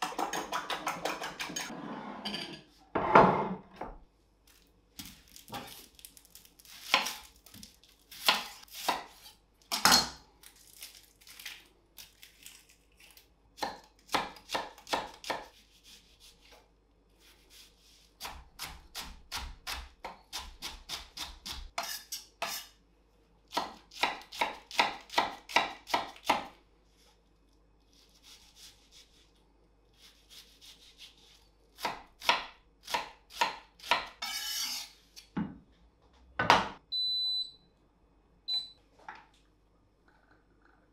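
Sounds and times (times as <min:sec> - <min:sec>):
knife chopping on wooden board: 0:13.6 - 0:15.6
knife scraping board: 0:34.2 - 0:35.0.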